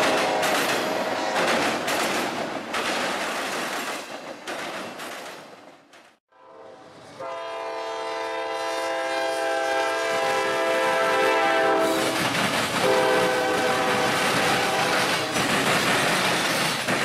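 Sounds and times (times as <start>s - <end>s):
passing train noise: 0.0s - 17.0s
locomotive air horn blasts: 6.3s - 12.2s, 12.8s - 15.4s.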